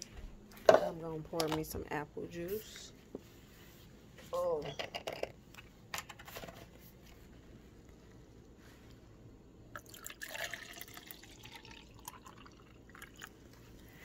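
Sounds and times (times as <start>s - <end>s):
juice pouring into cup: 9.7s - 13.8s.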